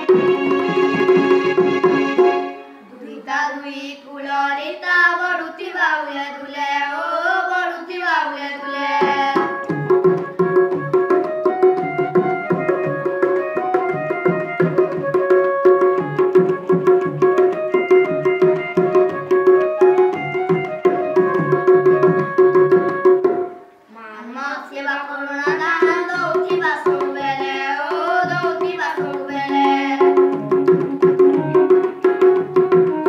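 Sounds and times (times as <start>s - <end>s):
barrel drum beating: 0.0s - 2.5s, 9.1s - 23.6s, 28.0s - 33.0s
electronic keyboard: 9.6s - 23.4s
person singing: 23.9s - 30.5s.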